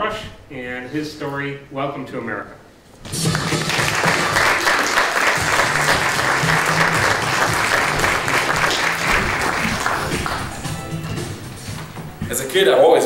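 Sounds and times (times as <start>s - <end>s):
audience applauding: 3.1s - 11.5s.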